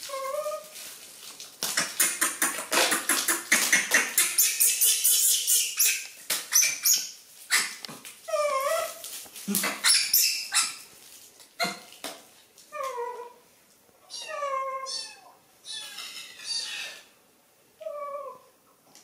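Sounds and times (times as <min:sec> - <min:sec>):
plastic packaging crinkling: 0:00.0 - 0:02.0, 0:07.1 - 0:12.7.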